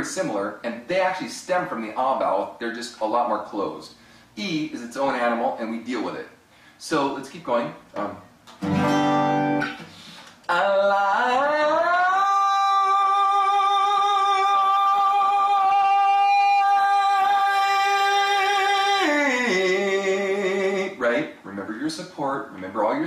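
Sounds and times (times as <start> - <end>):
acoustic guitar chord strummed: 8.6 - 10.2
man singing long vowel: 10.5 - 21.0.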